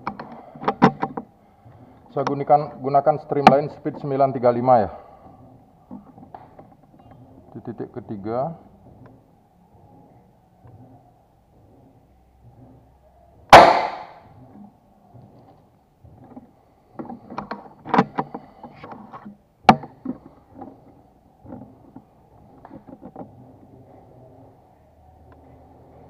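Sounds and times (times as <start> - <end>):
rifle handling clicks and knocks: 0.0 - 1.3, 16.2 - 20.8
air rifle shot crack: 13.5 - 14.2.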